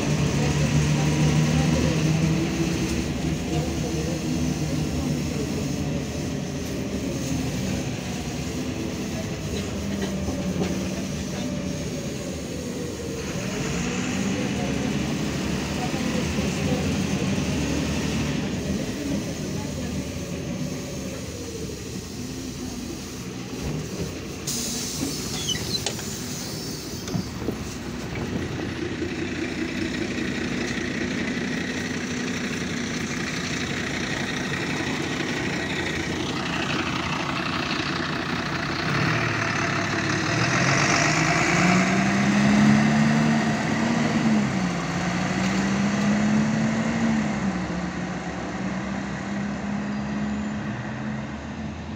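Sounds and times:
bus diesel engine running: 0:00.0 - 0:51.9
air brake hiss: 0:24.4 - 0:27.8.

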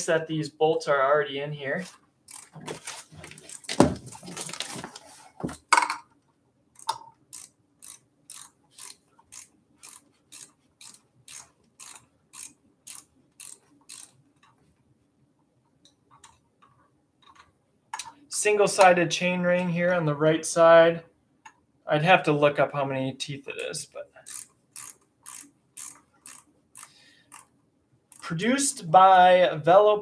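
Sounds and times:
handling rustle and clatter: 0:01.8 - 0:06.2
ratchet clicking: 0:02.3 - 0:02.6, 0:06.8 - 0:14.2, 0:24.2 - 0:27.5.

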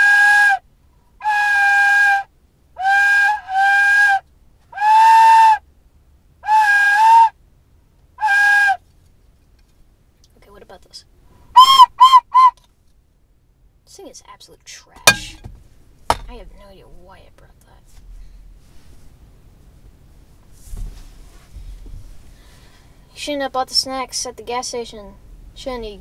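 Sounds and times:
whistle toots: 0:00.0 - 0:00.6, 0:01.2 - 0:04.2, 0:04.8 - 0:05.6, 0:06.4 - 0:07.4, 0:08.2 - 0:08.8, 0:11.6 - 0:12.6.

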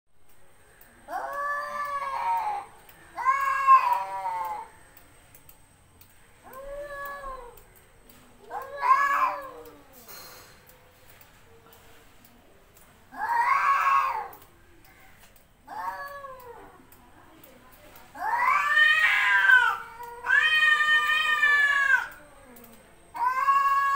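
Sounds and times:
cat meowing: 0:01.1 - 0:04.7, 0:06.4 - 0:07.6, 0:08.5 - 0:10.0, 0:18.2 - 0:23.9.

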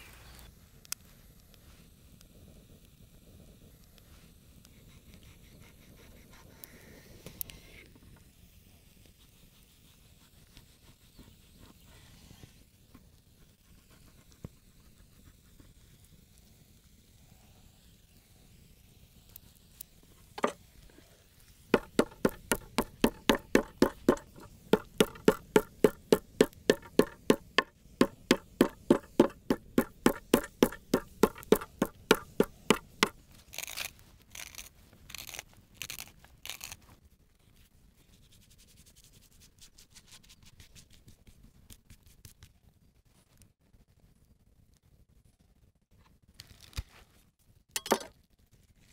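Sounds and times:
knock: 0:21.8 - 0:33.2
meat mallet pounding on board: 0:21.8 - 0:33.2.

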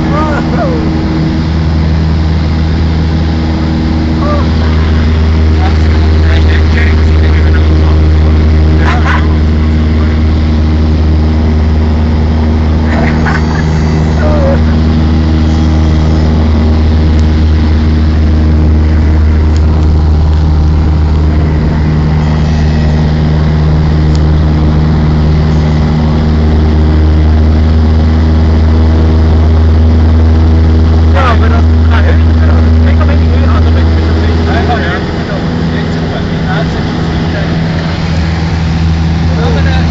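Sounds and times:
propeller plane engine droning: 0:00.0 - 0:39.9.

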